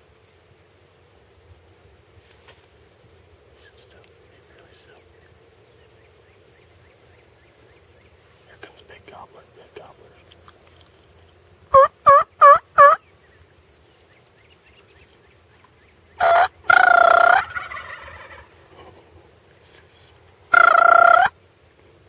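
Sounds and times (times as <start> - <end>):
turkey gobbles: 11.7 - 13.0, 16.2 - 19.1, 20.5 - 21.3
turkey yelps: 11.7 - 13.0, 16.2 - 18.5, 20.5 - 21.3.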